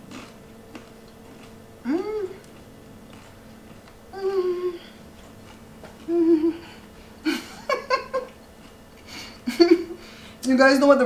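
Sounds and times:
woman humming: 0:01.8 - 0:02.6, 0:04.1 - 0:05.0, 0:05.9 - 0:07.7.

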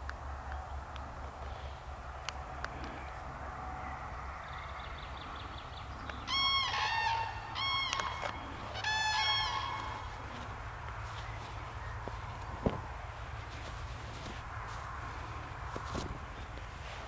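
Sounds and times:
cranes bugling calls: 0:02.5 - 0:12.5.

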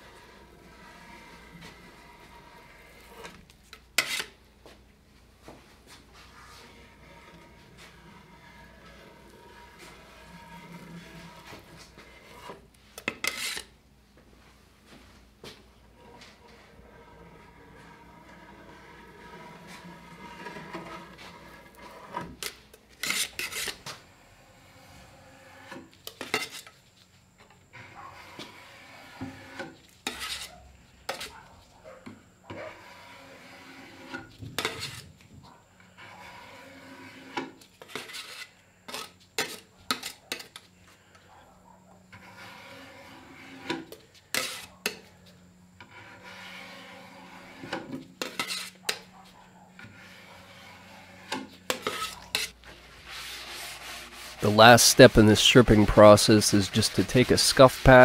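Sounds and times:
blade scraped on metal can rim: 0:00.0 - 0:03.4, 0:04.0 - 0:04.4, 0:06.4 - 0:13.7, 0:16.0 - 0:23.8, 0:24.6 - 0:26.7, 0:28.2 - 0:31.4, 0:32.5 - 0:35.0, 0:35.9 - 0:40.6, 0:42.1 - 0:45.1, 0:45.8 - 0:49.0, 0:49.8 - 0:58.0
putty knife scraping wood: 0:00.0 - 0:04.4, 0:06.3 - 0:13.7, 0:16.0 - 0:23.9, 0:24.6 - 0:26.7, 0:27.8 - 0:31.4, 0:32.5 - 0:35.1, 0:35.9 - 0:40.6, 0:42.1 - 0:45.1, 0:45.8 - 0:49.0, 0:49.8 - 0:58.0.

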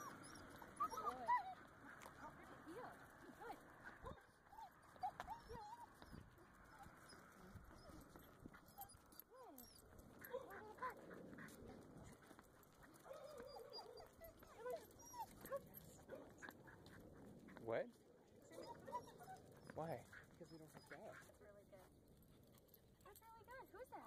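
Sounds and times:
dog whining: 0:00.0 - 0:01.7, 0:04.0 - 0:10.4, 0:13.0 - 0:16.5, 0:18.5 - 0:21.1.

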